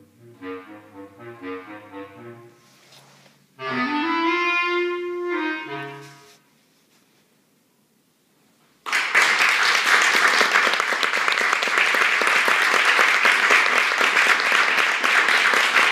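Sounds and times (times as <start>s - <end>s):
audience applauding: 8.8s - 15.9s.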